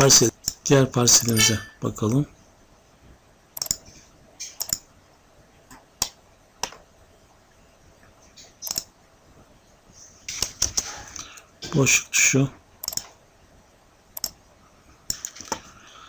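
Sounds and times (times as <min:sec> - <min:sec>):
computer mouse and key clicks: 0:03.6 - 0:04.9, 0:08.4 - 0:08.9, 0:12.8 - 0:13.2, 0:14.2 - 0:14.4, 0:15.1 - 0:15.8.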